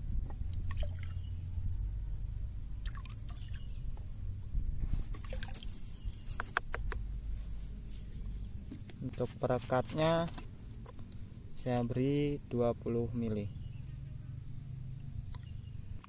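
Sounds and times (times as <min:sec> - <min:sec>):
liquid dripping and trickling: 0:00.5 - 0:01.3, 0:02.8 - 0:03.7, 0:05.1 - 0:06.2
small splashes: 0:00.5 - 0:01.3, 0:02.8 - 0:03.7, 0:05.1 - 0:06.2.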